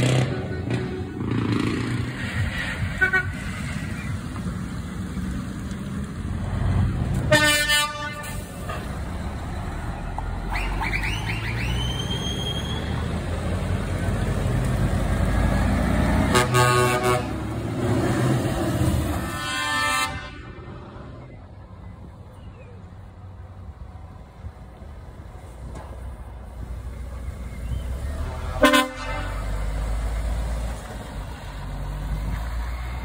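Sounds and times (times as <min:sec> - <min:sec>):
truck horn blasts: 0:00.0 - 0:02.0, 0:02.8 - 0:03.7, 0:07.3 - 0:09.0, 0:16.2 - 0:17.5, 0:19.1 - 0:20.8, 0:28.3 - 0:29.9
diesel truck engines passing: 0:00.0 - 0:33.0.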